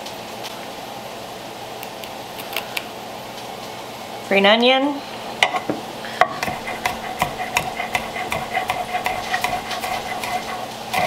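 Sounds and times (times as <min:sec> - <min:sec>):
knife chopping on wooden board: 0:06.2 - 0:11.0.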